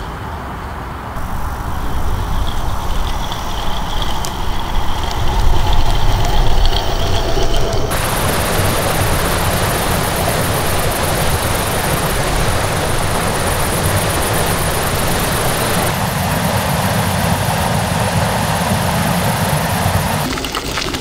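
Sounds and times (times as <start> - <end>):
wind: 0.0 - 21.0
heavy rain: 1.1 - 21.0
deep rumble: 1.2 - 16.6.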